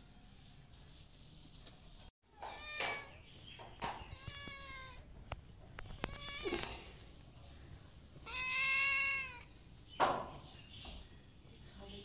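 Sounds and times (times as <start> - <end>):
cat meowing: 4.1 - 5.1, 5.9 - 6.9, 8.2 - 9.6.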